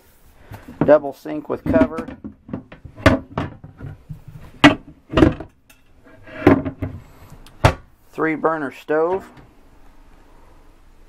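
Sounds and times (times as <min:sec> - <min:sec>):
sink cover scraping slide: 0:06.0 - 0:07.1.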